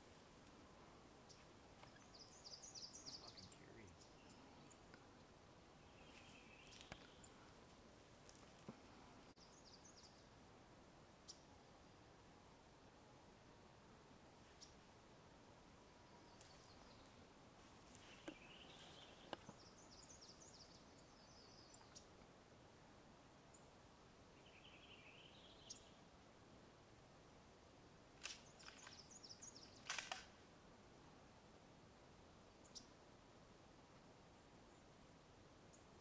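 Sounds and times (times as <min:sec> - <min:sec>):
sharp clicks: 0:29.8 - 0:30.3.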